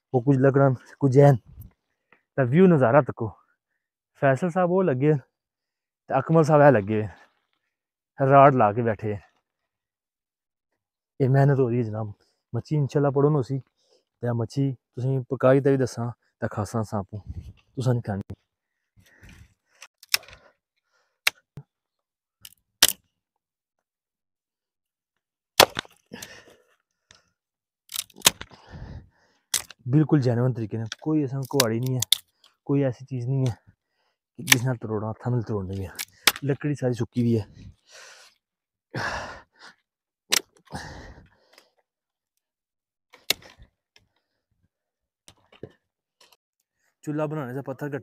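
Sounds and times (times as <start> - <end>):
dry branch cracking: 22.4 - 23.0, 25.6 - 26.3, 27.9 - 28.6, 29.5 - 29.8, 43.2 - 43.7
hard breaths of effort: 26.0 - 27.4, 28.4 - 29.5, 37.5 - 39.8, 40.6 - 41.9
twigs crackling: 27.9 - 28.6.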